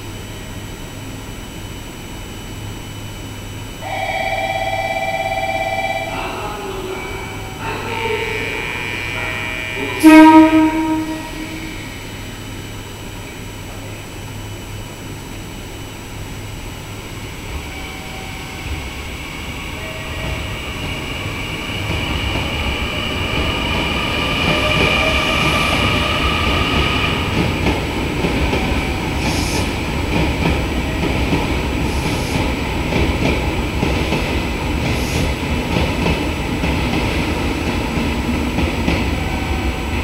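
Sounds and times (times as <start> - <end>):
electric train motor whine: 3.8 - 13.2, 16.6 - 33.5
train wheels clattering on rails: 17.5 - 40.0.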